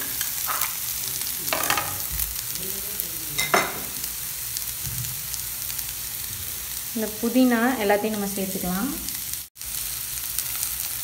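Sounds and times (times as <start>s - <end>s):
spoon knocking and scraping pan: 0.0s - 0.8s, 1.5s - 2.2s, 3.4s - 4.0s
vegetables sizzling in hot oil: 0.0s - 11.0s.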